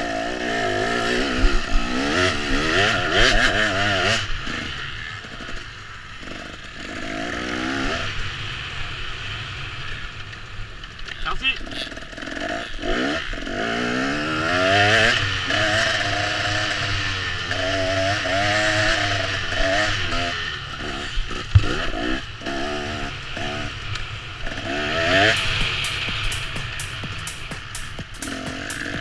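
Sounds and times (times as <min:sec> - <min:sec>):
small racing engines revving: 0:00.0 - 0:05.6, 0:11.6 - 0:29.0
sharp knock: 0:25.2 - 0:29.0.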